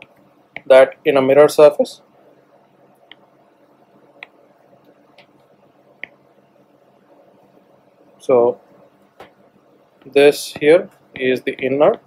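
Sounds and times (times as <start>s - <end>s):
low steady hiss: 0.0s - 12.0s.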